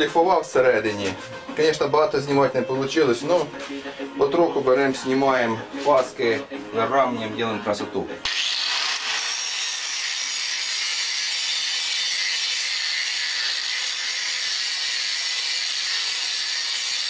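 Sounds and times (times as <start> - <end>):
angle grinder grinding steel: 8.2 - 17.0.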